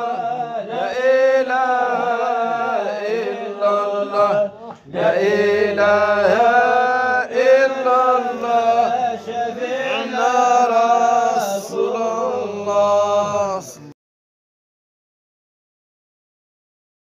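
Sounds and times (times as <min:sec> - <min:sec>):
person chanting religious song: 0:00.0 - 0:14.0.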